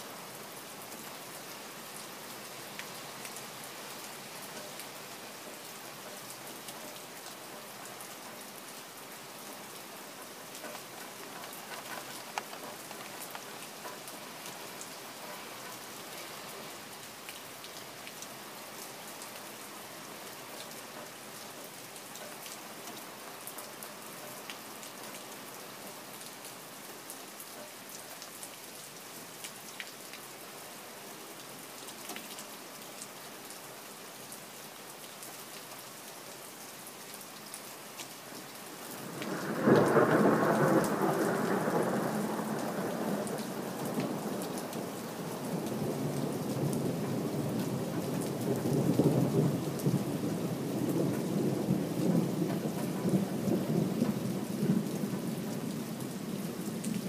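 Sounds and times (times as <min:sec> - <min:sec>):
rain pattering: 0:00.0 - 0:57.0
thunder rumbling: 0:39.0 - 0:44.9.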